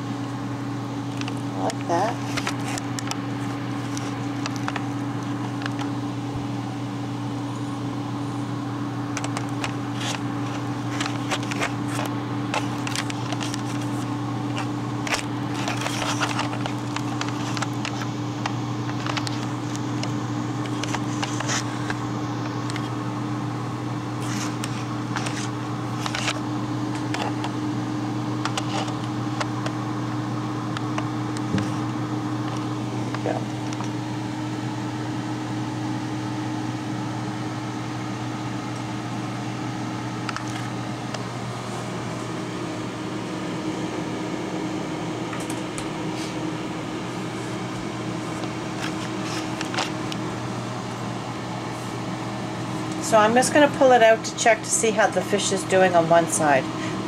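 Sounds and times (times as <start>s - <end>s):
air fryer fan whirring: 0.0s - 57.0s
faint clicks and crackles: 1.0s - 6.0s, 9.1s - 23.0s.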